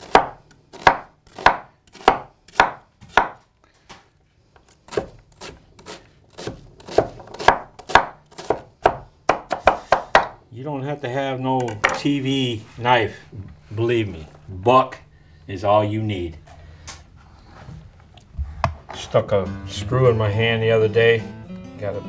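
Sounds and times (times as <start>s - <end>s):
knife chopping on wooden board: 0.0s - 3.4s, 4.9s - 10.4s.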